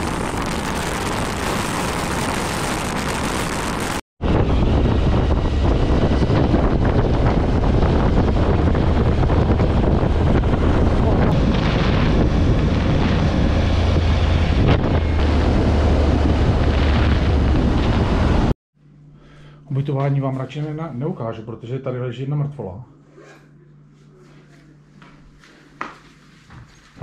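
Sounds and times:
wind buffeting microphone: 0.0s - 18.5s.

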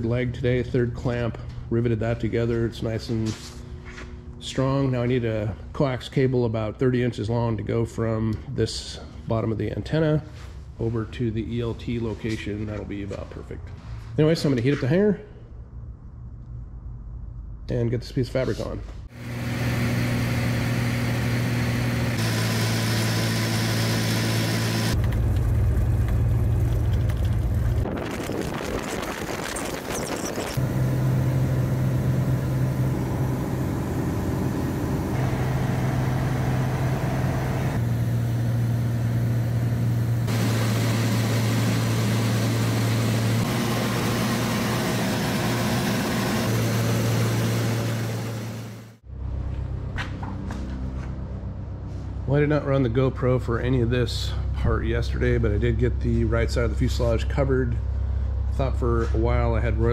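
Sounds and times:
airplane engine and propeller droning: 19.2s - 52.0s.

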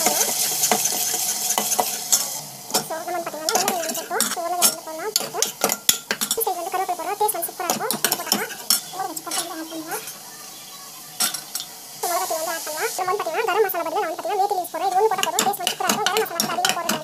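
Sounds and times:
spoon scraping a pan: 0.0s - 10.3s, 11.2s - 13.7s, 14.8s - 17.0s
light sizzle: 0.0s - 17.0s
spoon clinking against pan: 3.5s - 6.5s, 7.7s - 10.2s, 11.2s - 11.8s, 15.1s - 17.0s.

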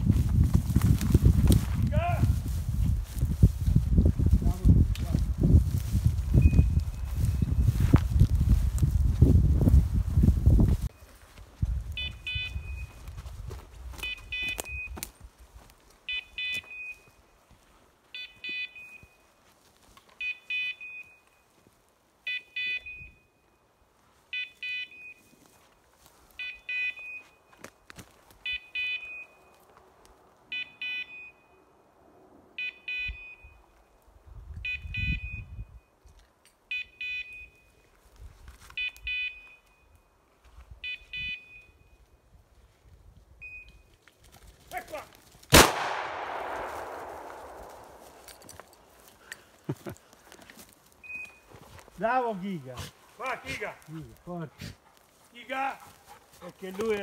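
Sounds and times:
footsteps through undergrowth: 0.0s - 22.6s, 23.8s - 28.6s, 29.2s - 30.4s, 37.7s - 40.8s, 43.8s - 57.0s.

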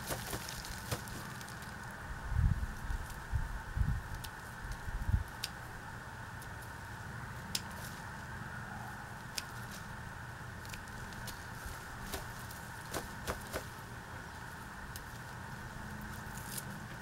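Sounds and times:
steady background hum: 0.0s - 17.0s
scissors snipping stems: 4.1s - 5.6s, 7.4s - 8.0s, 9.2s - 9.9s, 10.5s - 13.8s, 14.9s - 15.3s, 16.0s - 17.0s.

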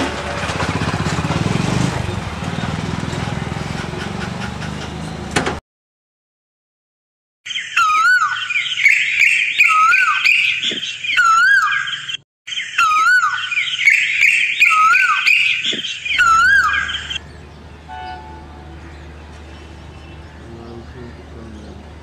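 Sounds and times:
chorus of bird chirps: 7.4s - 22.0s
bird whistled call: 7.5s - 18.8s.

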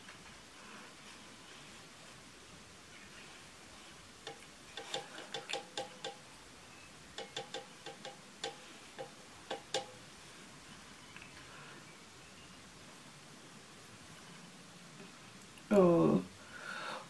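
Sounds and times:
makeup brush clicks and taps: 4.2s - 6.2s, 7.2s - 10.0s.

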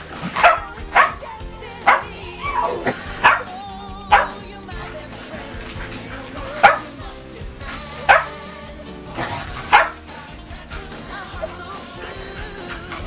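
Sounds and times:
background music: 0.0s - 13.0s
dog barking sharply: 0.4s - 3.5s, 4.1s - 4.4s, 6.6s - 6.9s, 8.1s - 8.4s, 9.7s - 10.0s.

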